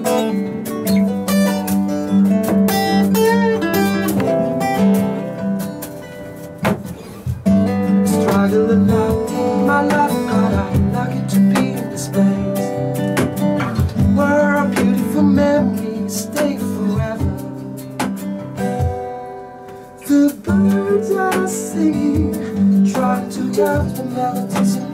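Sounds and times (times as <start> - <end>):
acoustic guitars strummed and picked: 0.0 - 24.9
cajon beating rhythm: 0.0 - 24.9
man singing: 7.9 - 13.1, 13.7 - 17.8, 20.0 - 24.9.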